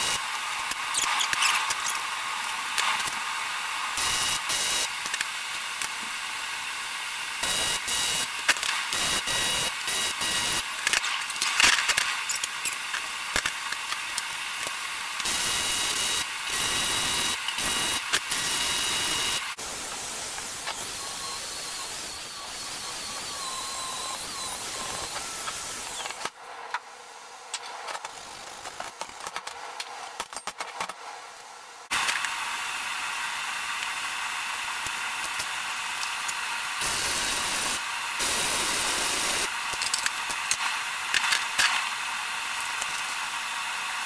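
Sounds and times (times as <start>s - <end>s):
welder arcing with crackling hiss: 0.0s - 26.4s, 31.9s - 44.0s
angle grinder grinding steel: 12.2s - 26.3s.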